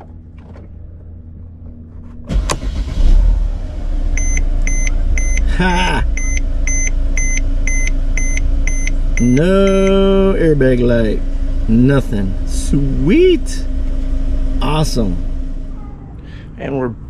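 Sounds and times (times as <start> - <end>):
car engine cranking and idling: 0.0 - 17.0
dashboard warning chime beeping: 4.2 - 10.3.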